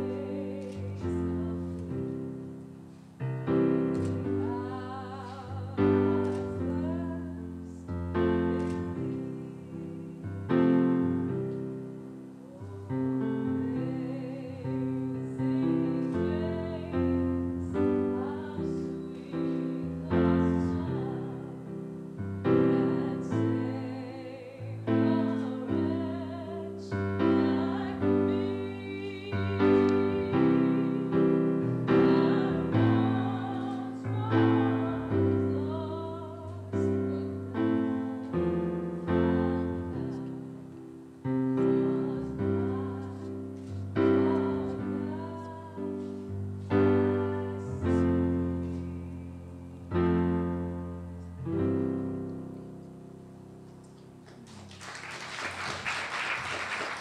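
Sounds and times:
person singing with vibrato: 0.0 - 2.6, 12.3 - 50.2
slow piano chords: 0.0 - 54.7.

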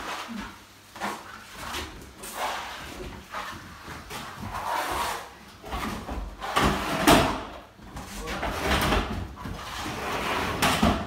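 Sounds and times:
spatula scraping plaster: 2.2 - 5.4, 9.6 - 10.8.

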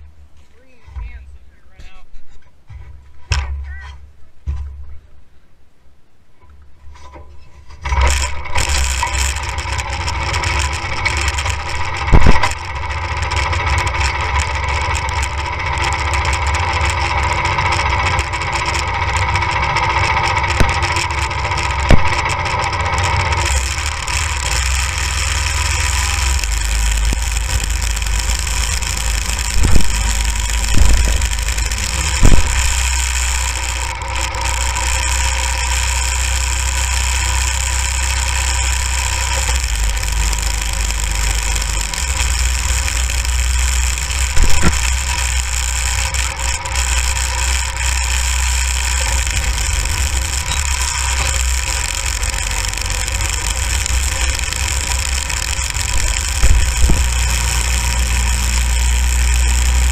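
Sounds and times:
go-kart engine running: 7.8 - 59.9.

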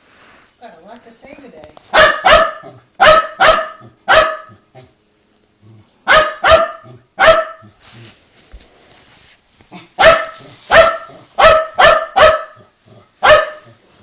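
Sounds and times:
small dog barking sharply: 1.9 - 4.6, 6.1 - 7.7, 10.0 - 12.6, 13.2 - 13.7.

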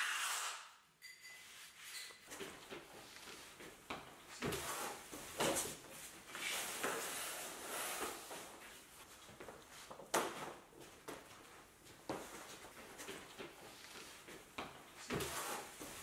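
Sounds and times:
wooden board scraping on floor: 4.4 - 8.6.

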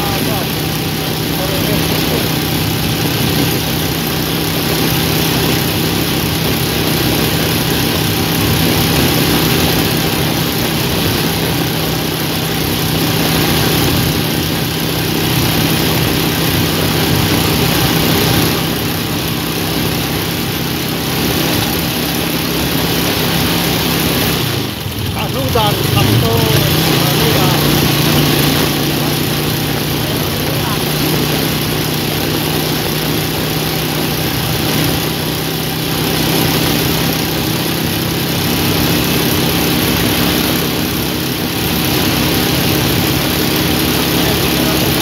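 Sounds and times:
motorcycle engine running: 0.0 - 45.0
wind and road noise: 0.0 - 45.0.

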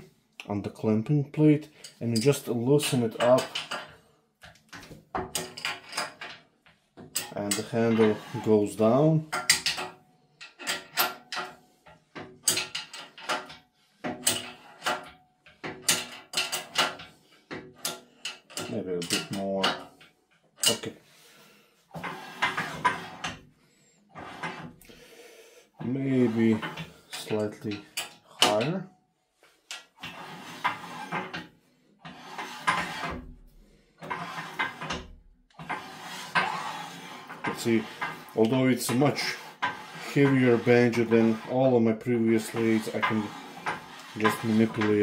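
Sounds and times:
lathe part scraping along bed: 7.2 - 9.1, 21.1 - 23.5, 24.1 - 25.0, 25.7 - 28.7, 29.8 - 33.4, 34.0 - 45.0.

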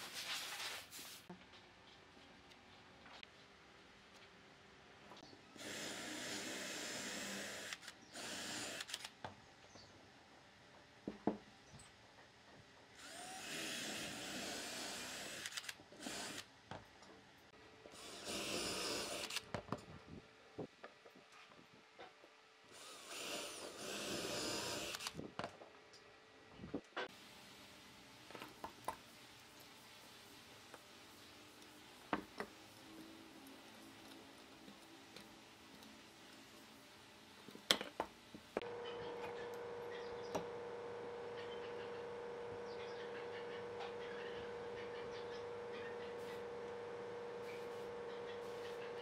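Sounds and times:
power tool cutting wood: 13.0 - 16.4, 18.0 - 19.4, 22.8 - 25.0.

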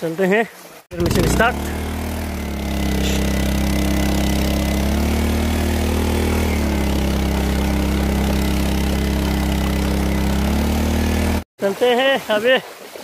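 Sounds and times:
petrol engine running: 0.9 - 11.4.

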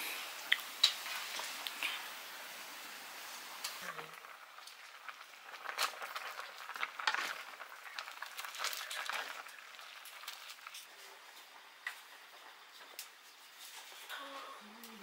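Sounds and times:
noodles boiling in a wok: 0.0 - 15.0.

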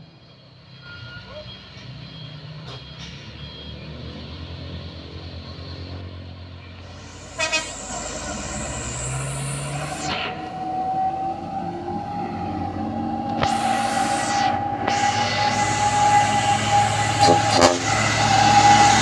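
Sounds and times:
diesel truck engine under load: 1.5 - 19.0
steady high whine: 6.9 - 19.0.

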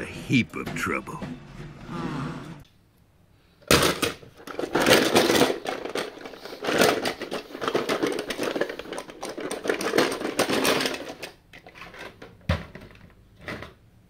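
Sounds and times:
metal toy cars clattering: 3.6 - 13.8.

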